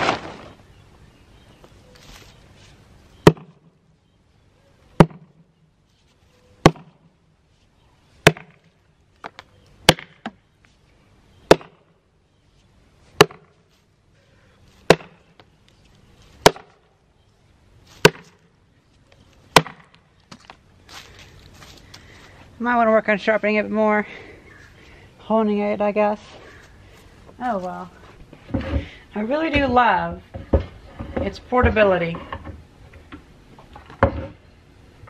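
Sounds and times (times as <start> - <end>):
axe chopping into log: 3.2 - 3.6, 5.0 - 5.3, 6.6 - 7.0, 8.2 - 8.7, 9.3 - 10.4, 11.5 - 11.8, 13.2 - 13.5, 14.8 - 15.2, 16.4 - 16.8, 18.0 - 18.4, 19.5 - 20.0.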